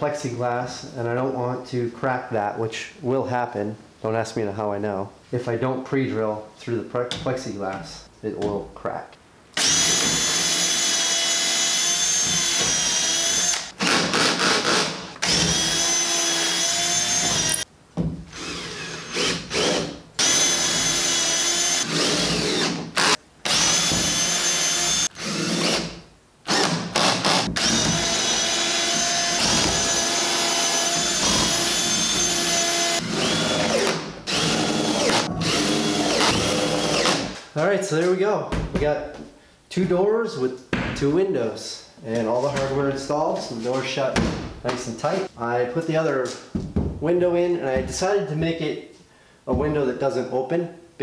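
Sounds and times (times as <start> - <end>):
cordless drill whining: 9.6 - 17.7, 18.3 - 25.9, 26.5 - 37.2.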